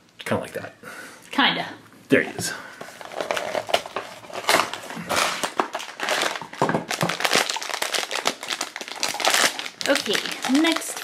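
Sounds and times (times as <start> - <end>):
foil bag crinkling: 2.8 - 11.0.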